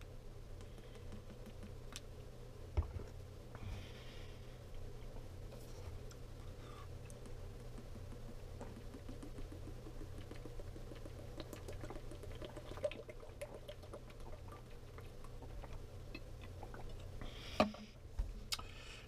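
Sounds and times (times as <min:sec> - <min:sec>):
steady low hum: 0:00.0 - 0:19.0
person gulping water: 0:07.1 - 0:17.2.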